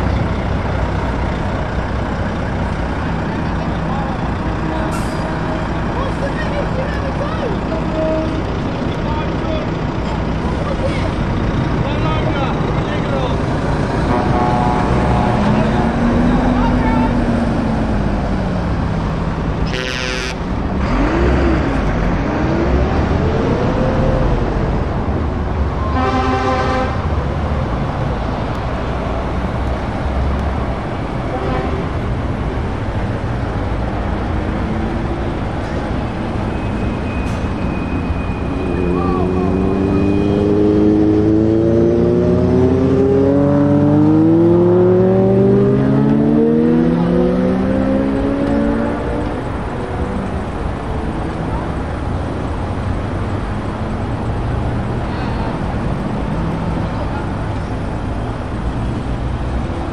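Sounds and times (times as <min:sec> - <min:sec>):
lorry diesel engines revving: 0:00.0 - 0:59.9
truck horn blast: 0:14.0 - 0:16.0, 0:19.6 - 0:20.5, 0:25.8 - 0:27.1, 0:31.3 - 0:31.9.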